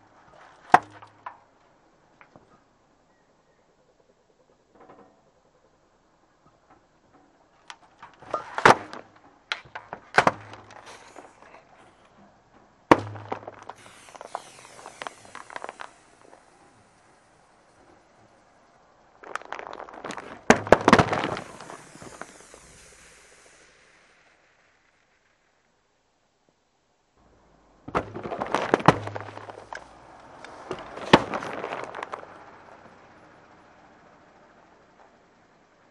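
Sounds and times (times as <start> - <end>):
drink cans bursting under tyre: 0.2 - 1.5, 7.6 - 12.2, 12.8 - 25.2, 27.8 - 32.8
hiss of spraying drink: 13.8 - 17.5, 21.2 - 24.4.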